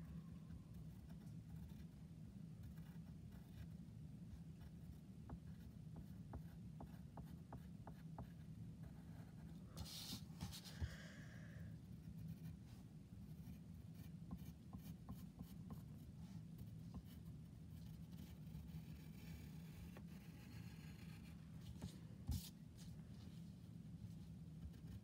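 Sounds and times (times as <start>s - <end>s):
low steady hum: 0.0s - 25.0s
pencil scratching on paper: 2.6s - 3.7s, 4.6s - 10.8s, 12.1s - 22.9s, 24.1s - 25.0s.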